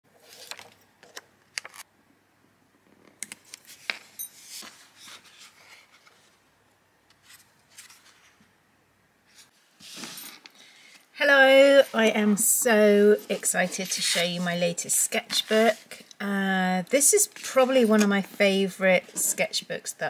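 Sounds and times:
paper rustling: 0.1s - 1.8s, 3.4s - 6.4s, 7.2s - 8.5s, 13.6s - 14.4s.

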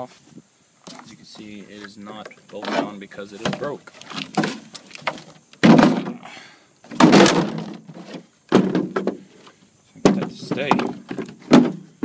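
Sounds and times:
hollow bangs of mower hood: 5.6s - 6.2s, 6.9s - 9.3s, 10.0s - 12.0s.

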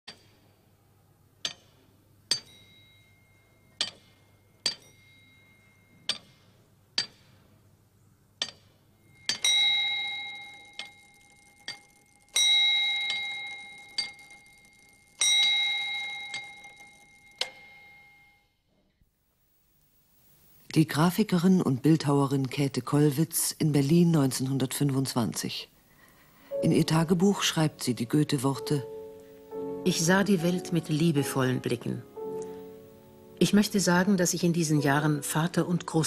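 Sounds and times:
clockwork gears clicking: 9.3s - 17.6s.

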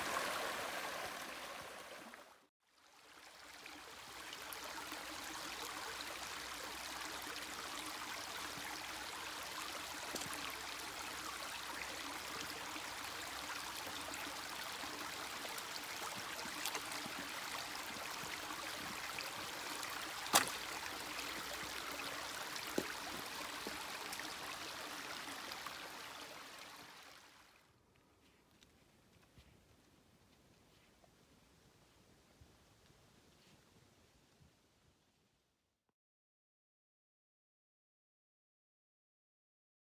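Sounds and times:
creek rushing over stones: 0.0s - 27.5s.

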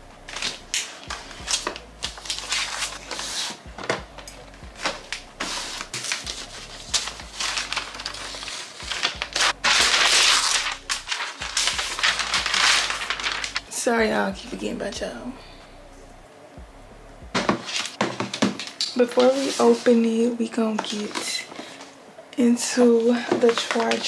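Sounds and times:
paper wrap crinkling: 0.2s - 13.7s, 17.4s - 20.0s, 23.0s - 24.0s.

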